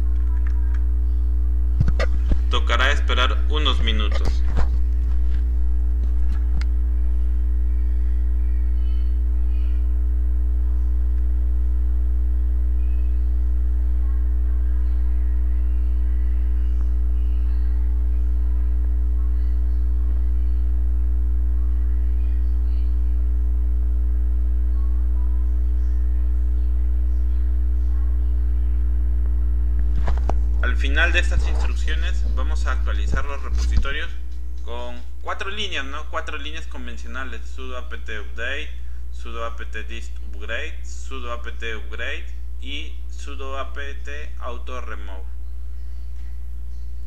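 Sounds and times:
low electrical hum: 0:00.0 - 0:47.0
faint high steady tone: 0:12.5 - 0:23.6.

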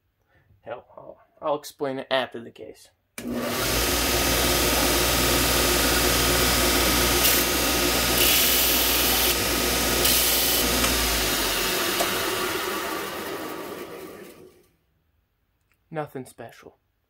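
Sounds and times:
belt grinder running: 0:03.2 - 0:14.7
metal bar grinding on belt: 0:04.2 - 0:11.0.

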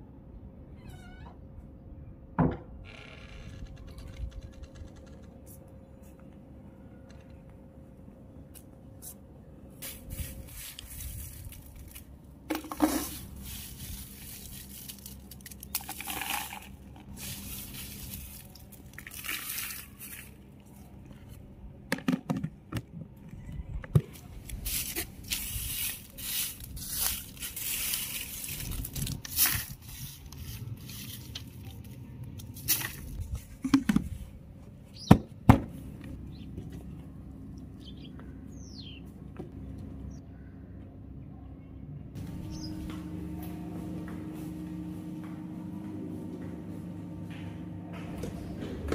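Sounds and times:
chillies and paper rustling: 0:09.8 - 0:21.5, 0:24.0 - 0:34.3.

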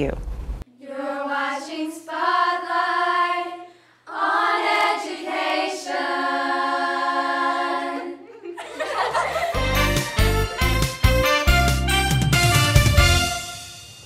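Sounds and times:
girls' chorus singing: 0:00.7 - 0:09.5.

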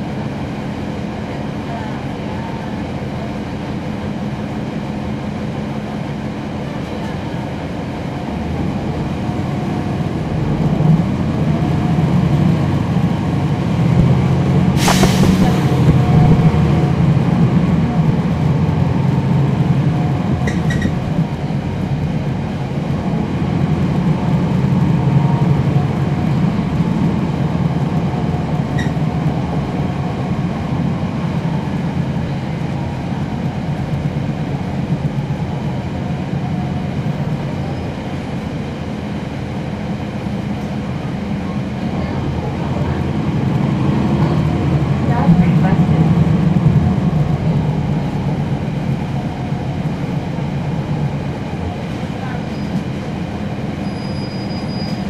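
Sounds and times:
bus engine drone from on board: 0:00.0 - 0:55.0
sharp click: 0:14.8 - 0:16.5.

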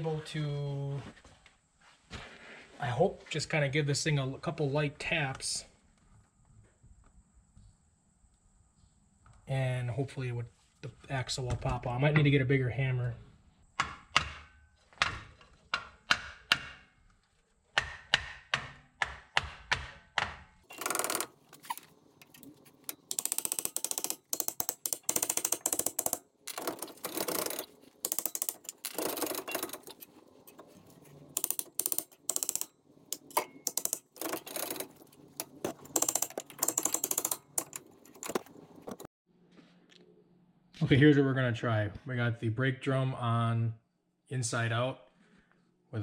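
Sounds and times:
ratchet wrench clicking: 0:20.7 - 0:30.0, 0:31.4 - 0:38.4.

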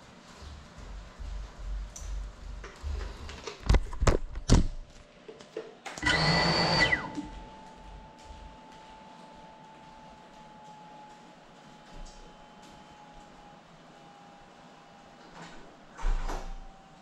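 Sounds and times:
drone motors whining: 0:06.0 - 0:08.0.

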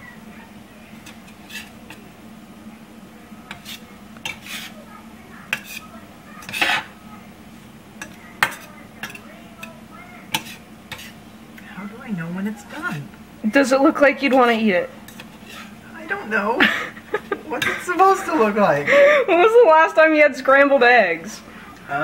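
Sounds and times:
steady low hum: 0:00.0 - 0:22.0
spatula scraping frying pan: 0:00.9 - 0:02.2, 0:03.5 - 0:07.0, 0:08.0 - 0:11.3, 0:13.8 - 0:15.9
spatula clinking against pan: 0:08.0 - 0:11.1.

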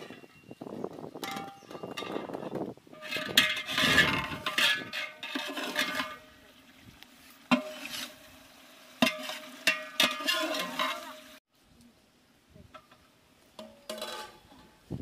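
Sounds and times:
metal spatula scraping a pot: 0:01.3 - 0:06.4, 0:07.5 - 0:08.2, 0:09.0 - 0:11.4, 0:13.6 - 0:14.8.

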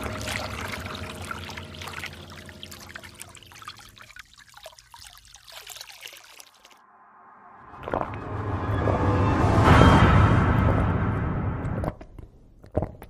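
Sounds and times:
water trickling into a glass: 0:00.0 - 0:06.8.

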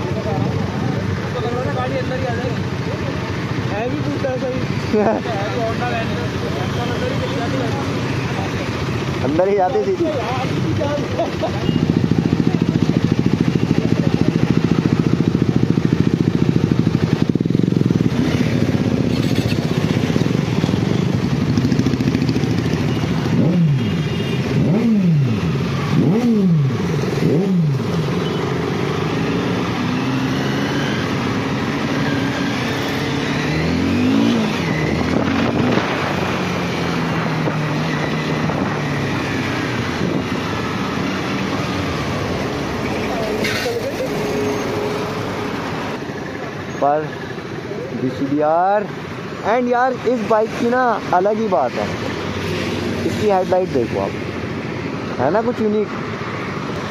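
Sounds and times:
motorcycle engines idling: 0:00.0 - 0:30.3, 0:36.0 - 0:55.9
motorcycle accelerating away: 0:00.0 - 0:46.0.

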